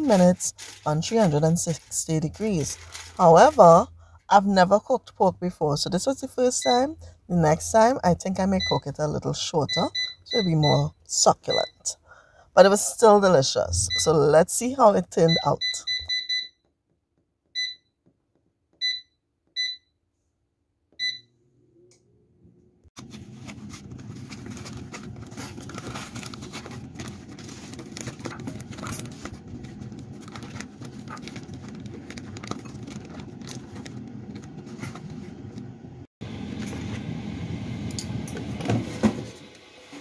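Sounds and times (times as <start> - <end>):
touch panel beeps: 15.3 - 16.6, 17.6 - 17.9, 18.8 - 19.9, 21.0 - 21.2
air fryer rushing noise: 23.0 - 40.0.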